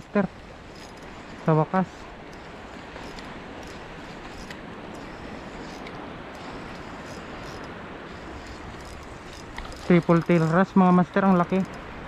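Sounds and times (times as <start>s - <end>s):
sea water rushing: 0.0s - 12.0s
wind on microphone: 0.0s - 12.0s
faint ticks: 2.2s - 11.8s.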